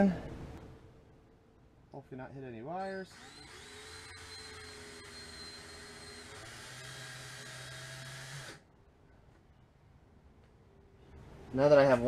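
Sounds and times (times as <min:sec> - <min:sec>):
cordless drill motor whine: 0:02.8 - 0:08.6.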